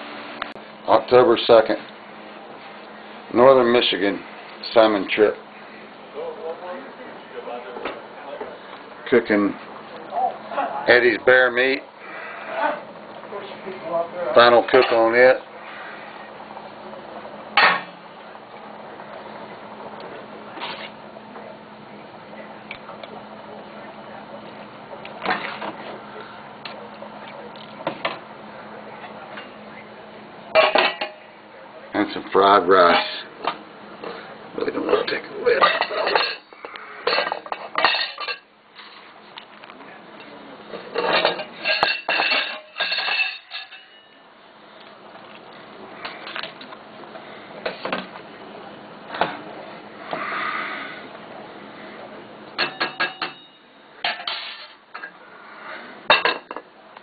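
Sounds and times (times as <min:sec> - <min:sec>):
steady low hum: 0:00.0 - 0:57.0
dishes clattering: 0:17.6 - 0:18.0, 0:25.2 - 0:25.9, 0:30.5 - 0:31.2, 0:32.8 - 0:34.2, 0:34.9 - 0:38.5, 0:40.2 - 0:44.2, 0:52.6 - 0:55.2, 0:56.0 - 0:56.7
kitchen utensils clicking and knocking: 0:30.6 - 0:31.2, 0:35.0 - 0:38.5, 0:40.9 - 0:44.0, 0:52.6 - 0:55.2.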